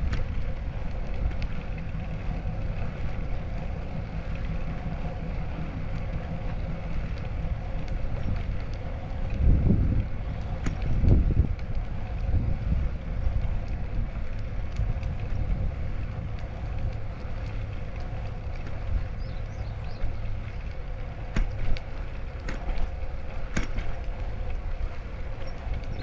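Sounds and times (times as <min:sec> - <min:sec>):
bicycle rolling rumble: 0:00.0 - 0:26.0
faint steady hum: 0:00.0 - 0:26.0
wind buffeting microphone: 0:00.0 - 0:26.0.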